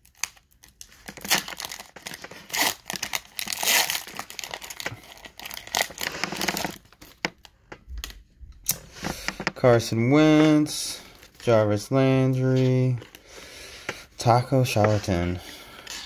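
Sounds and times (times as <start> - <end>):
wrapper crinkling and ripping: 0.0 - 9.2.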